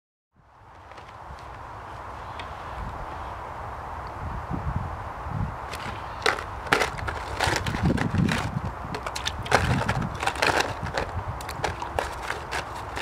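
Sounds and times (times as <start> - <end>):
ice cubes clattering into water: 5.7 - 13.0.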